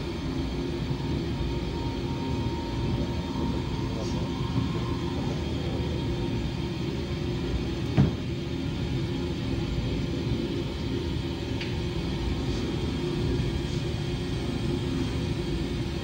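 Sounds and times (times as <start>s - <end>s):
low rumbling drone: 0.0s - 11.4s.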